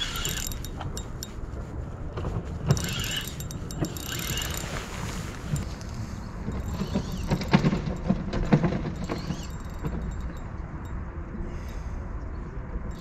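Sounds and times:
fishing reel clicks and rattles: 0:00.0 - 0:01.4, 0:02.6 - 0:10.4
steady low rumble: 0:00.0 - 0:13.0.

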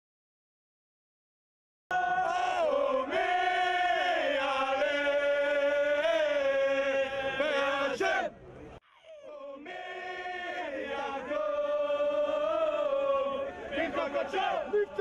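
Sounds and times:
men chanting in held notes: 0:09.3 - 0:15.0.

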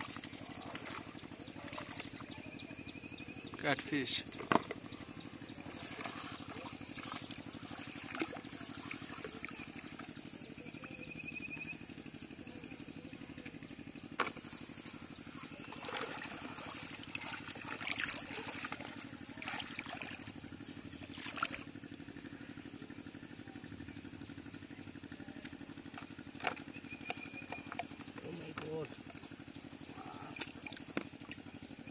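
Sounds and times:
water splashing and sloshing: 0:00.0 - 0:02.5, 0:04.3 - 0:10.6, 0:14.2 - 0:21.9, 0:25.9 - 0:31.9
low motor hum: 0:00.0 - 0:31.9.

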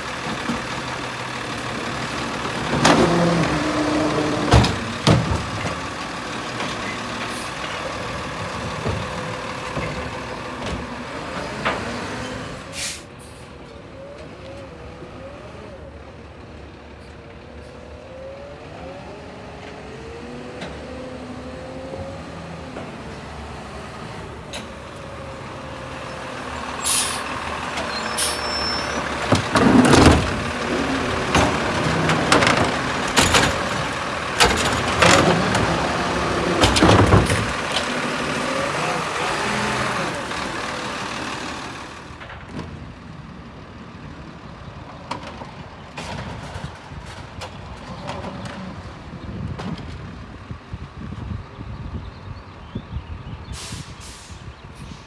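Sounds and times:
truck engine running hard: 0:00.0 - 0:55.0
air brakes hissing: 0:12.7 - 0:13.5, 0:26.8 - 0:27.3, 0:53.5 - 0:55.0.

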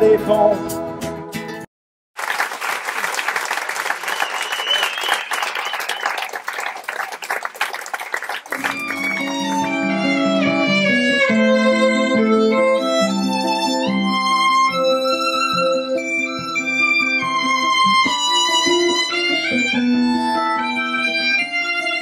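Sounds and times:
audience applauding: 0:02.2 - 0:10.0
violin melody with sliding notes: 0:08.6 - 0:22.0.

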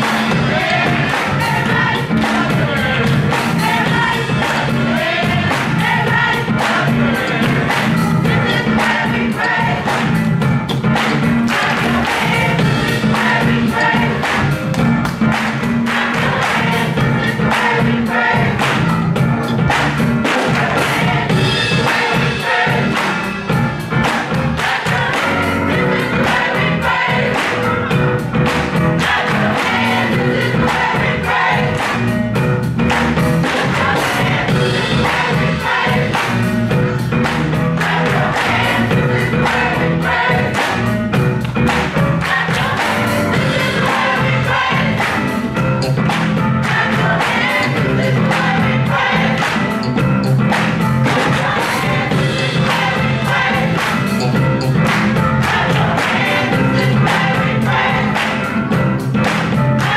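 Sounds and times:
choir singing: 0:00.0 - 0:10.4, 0:11.0 - 0:19.1, 0:20.2 - 0:32.3, 0:33.4 - 0:41.1, 0:42.0 - 0:59.9
hand clapping: 0:59.2 - 0:59.9.

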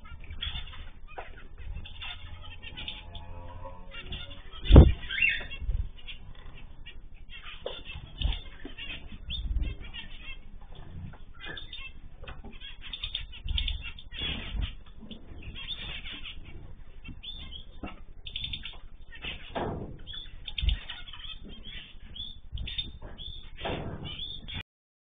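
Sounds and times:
finches chirping: 0:00.0 - 0:24.6
wings fluttering: 0:00.1 - 0:24.6
birds landing thumps: 0:19.2 - 0:24.6.

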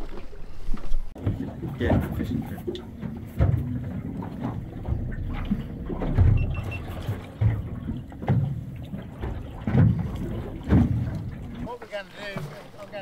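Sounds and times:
water lapping at boat: 0:00.0 - 0:13.0.

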